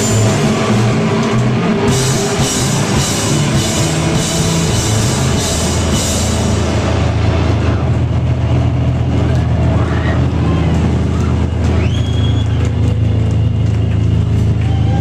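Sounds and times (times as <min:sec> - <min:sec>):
cymbal crashes: 0:00.0 - 0:08.2
heavy rock band playing: 0:00.0 - 0:11.9.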